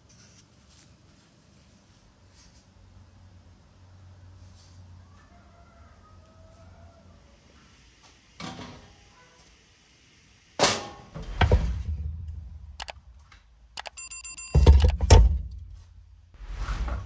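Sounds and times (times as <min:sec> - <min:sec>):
rapid clicking: 0:12.8 - 0:13.0.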